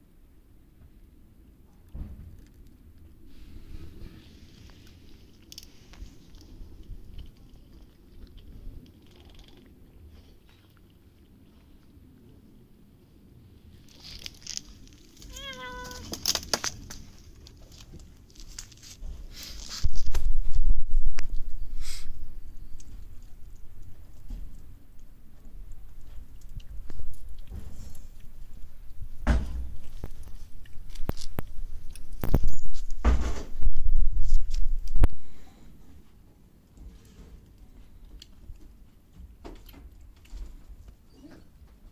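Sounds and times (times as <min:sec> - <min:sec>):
clicks of cats eating: 0:00.8 - 0:21.6, 0:22.4 - 0:41.9
knocks and rustles: 0:01.8 - 0:02.8, 0:26.0 - 0:31.4, 0:32.1 - 0:35.1
cat meowing: 0:15.2 - 0:16.2.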